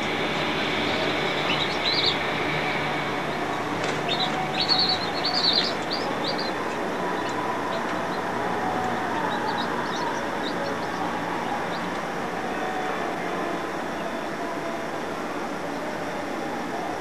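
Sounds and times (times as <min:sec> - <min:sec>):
chicks peeping: 0:00.0 - 0:12.2
steady noisy hum: 0:00.0 - 0:17.0.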